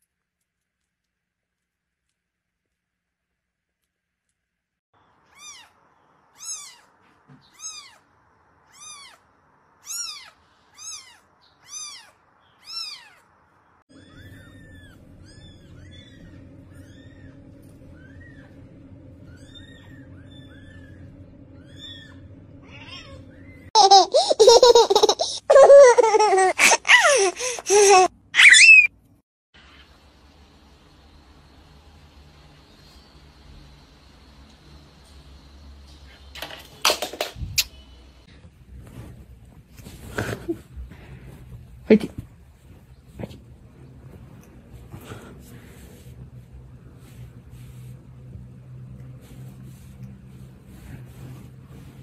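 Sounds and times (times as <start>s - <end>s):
kitten crying loudly: 9.8s - 13.2s
low steady hum: 13.6s - 26.6s, 37.2s - 52.0s.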